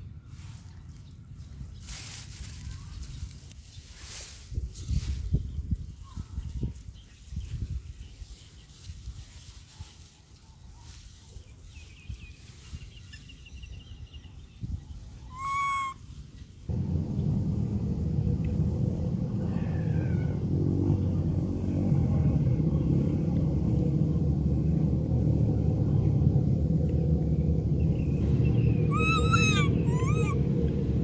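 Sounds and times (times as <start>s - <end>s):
steady low rumble: 0.0s - 31.0s
macaque high call: 15.3s - 16.0s, 28.9s - 30.4s.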